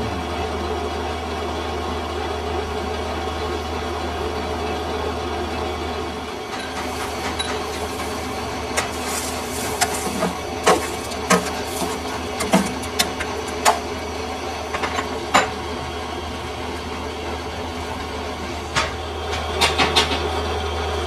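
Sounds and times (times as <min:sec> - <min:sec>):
lathe motor hum: 0:00.0 - 0:21.0
sharp clicks and knocks: 0:09.6 - 0:13.9.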